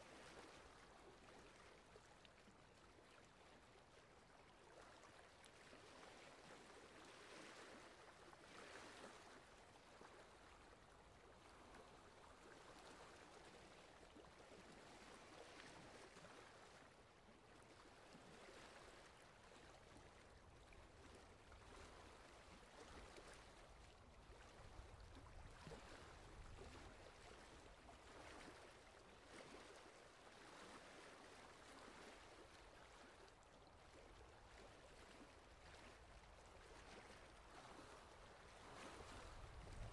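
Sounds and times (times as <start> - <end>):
water sloshing from paddle: 11.4 - 39.9.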